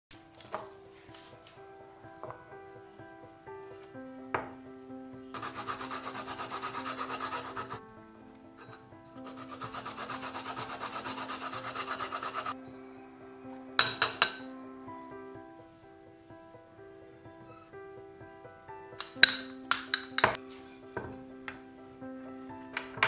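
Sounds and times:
soft background music: 0.1 - 23.0
garlic scraping on metal grater: 5.4 - 7.8, 9.2 - 12.6.

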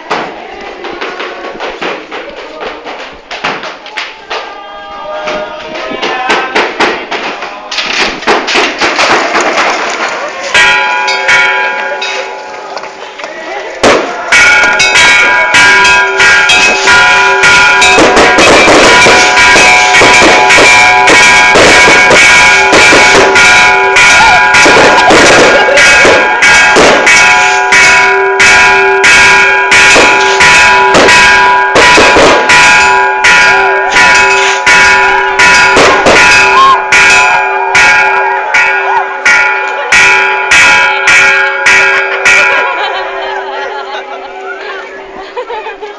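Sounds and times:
faint shouting voices: 0.0 - 7.9, 10.0 - 30.6, 32.6 - 45.9
bell struck rapidly: 10.5 - 12.4, 13.8 - 44.3.

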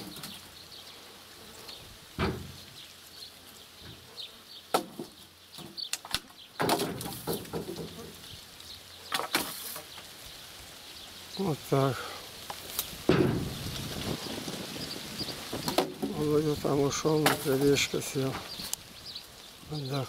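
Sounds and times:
logs landing on a log pile: 2.2 - 2.7, 4.7 - 8.1, 9.1 - 10.0, 12.4 - 14.6, 15.5 - 16.4, 17.0 - 18.7.

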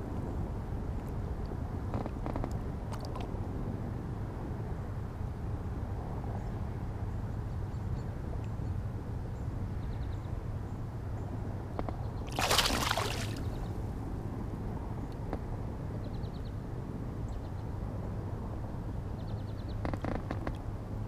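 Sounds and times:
fish splashing in water: 12.3 - 13.8.

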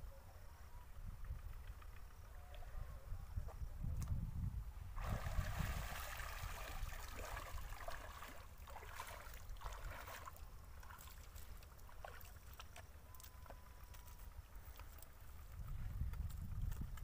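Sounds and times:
water splashing around legs: 5.0 - 12.9.

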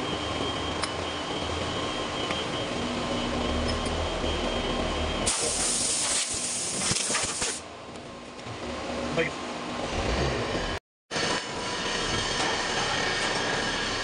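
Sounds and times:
heavy machinery rumble and whine: 0.0 - 14.0
loud hiss: 5.3 - 7.6.

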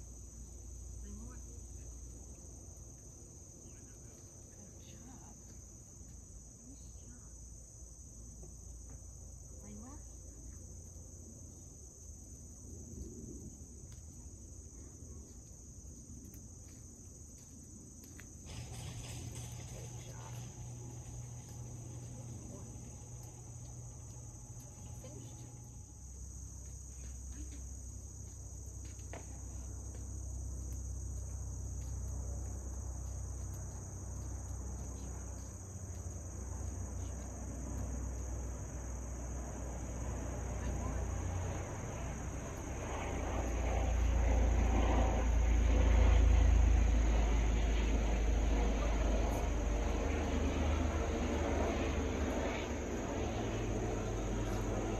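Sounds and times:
crickets trilling: 0.0 - 54.9
low rumble: 17.8 - 54.9.

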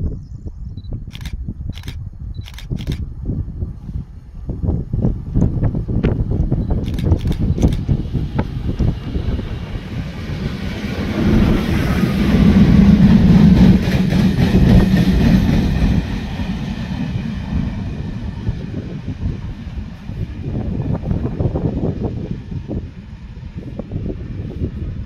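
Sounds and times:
diesel locomotive engine hum: 0.0 - 25.0.

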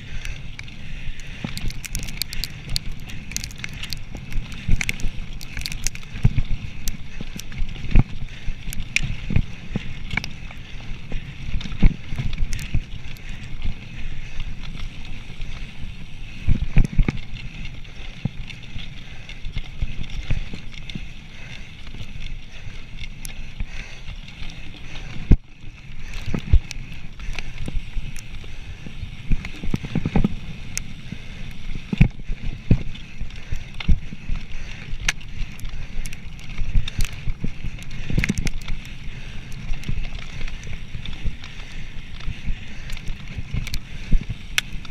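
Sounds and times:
bike rattling: 0.0 - 44.9.

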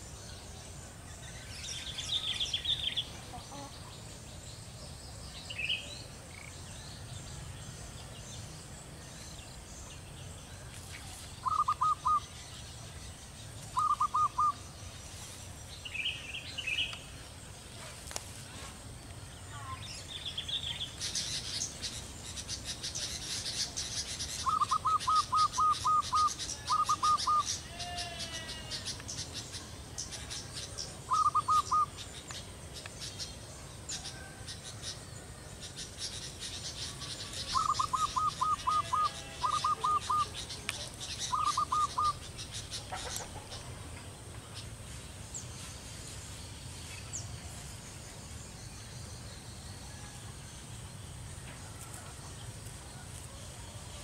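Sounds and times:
faint high bird chirps: 9.5 - 17.1, 19.3 - 35.1, 35.7 - 44.8.

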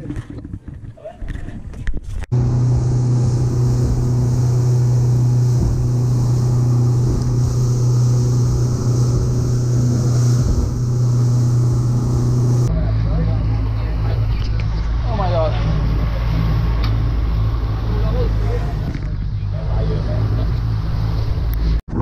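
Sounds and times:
water and wind rushing: 2.3 - 12.7
boat engine droning: 2.3 - 21.8.

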